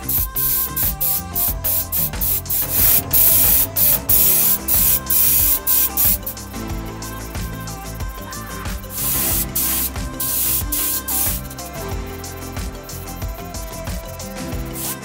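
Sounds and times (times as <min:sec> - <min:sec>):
airbrush spraying hiss: 0:00.0 - 0:15.0.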